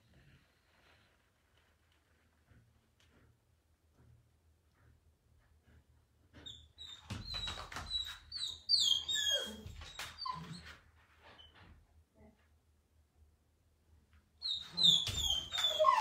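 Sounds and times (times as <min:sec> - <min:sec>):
puppies whimpering and yipping: 0:07.9 - 0:10.5, 0:14.8 - 0:16.0.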